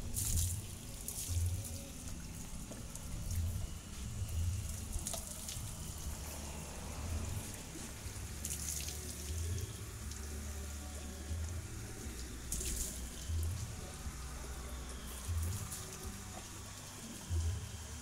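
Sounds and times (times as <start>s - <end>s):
low hum: 0.0s - 18.0s
water running and splashing: 7.5s - 10.3s.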